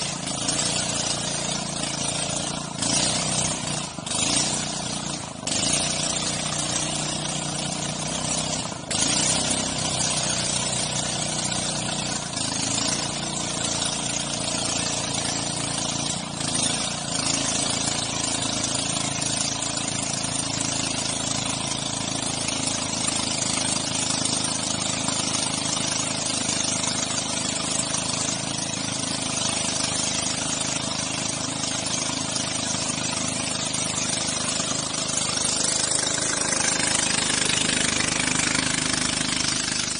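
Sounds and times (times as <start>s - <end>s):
outboard motor running: 0.0s - 39.9s
water rushing along hull: 30.4s - 39.9s.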